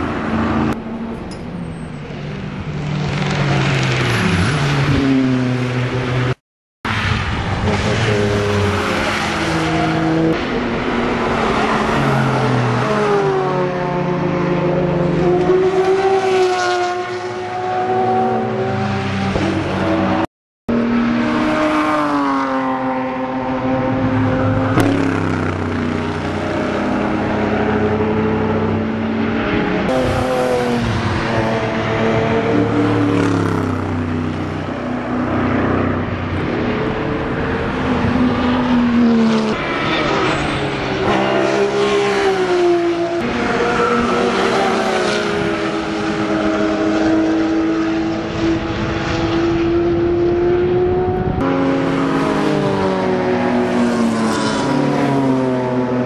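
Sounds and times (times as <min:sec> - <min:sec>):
race car engines passing: 0:00.0 - 0:56.0
tyre and wind noise: 0:48.3 - 0:51.5.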